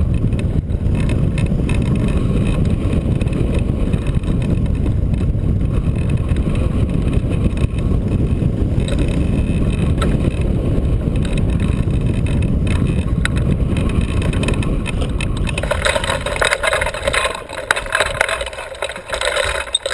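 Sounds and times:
wind buffeting microphone: 0.0 - 19.9
frame and harness rattling: 11.2 - 19.9.

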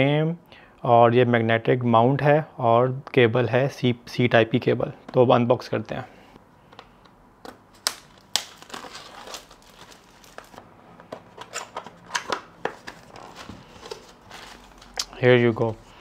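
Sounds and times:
box and plastic wrap rustling: 7.8 - 16.0.

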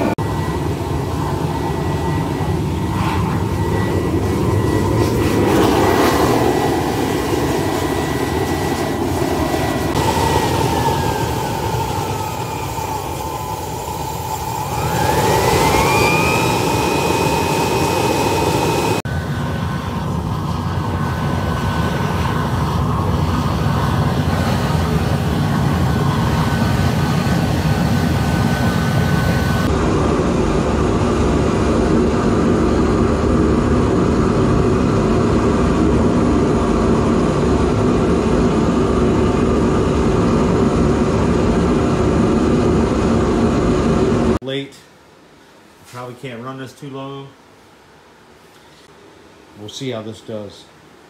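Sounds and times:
gas burner roaring: 0.0 - 44.4
rising whistling tone: 9.5 - 19.0.

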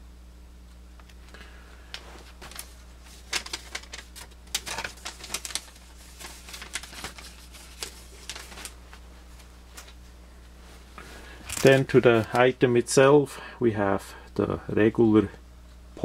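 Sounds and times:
paper leaflet crinkling: 1.9 - 10.1, 11.0 - 12.6.

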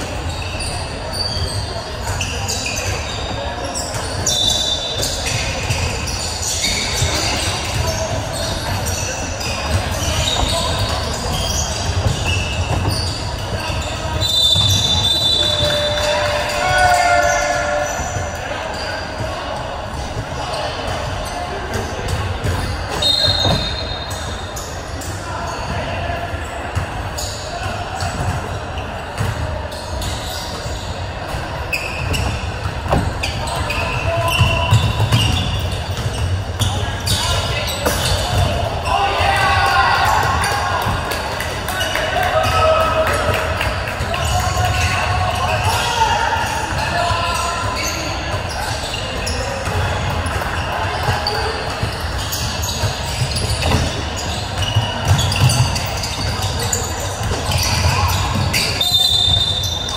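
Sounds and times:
shoe squeaks: 0.0 - 40.6, 44.2 - 59.9
basketball bouncing on court: 6.7 - 16.0, 28.0 - 28.6, 31.3 - 38.8, 49.2 - 59.8.

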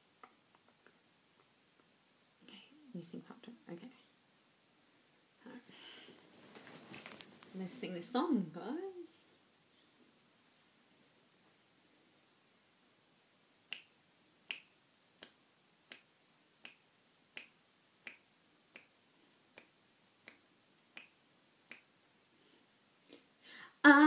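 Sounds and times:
finger snaps: 13.7 - 16.8, 17.4 - 18.9, 19.5 - 21.9.

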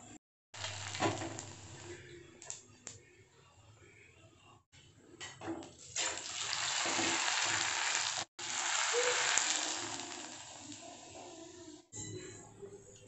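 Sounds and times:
chips sizzling in hot oil: 0.6 - 2.0, 5.8 - 11.4.

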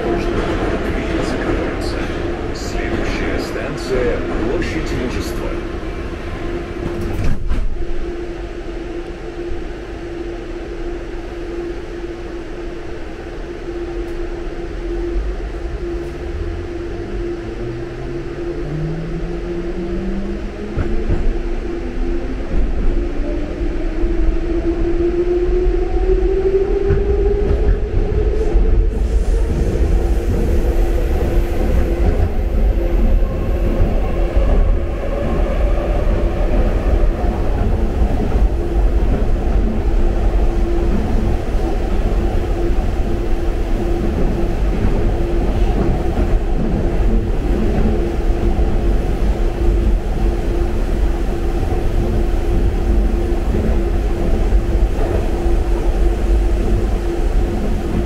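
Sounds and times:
train wheels rumbling: 12.7 - 58.0.

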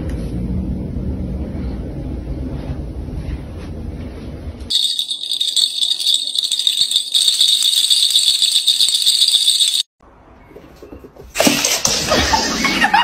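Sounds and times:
toy rattling: 4.7 - 9.9.

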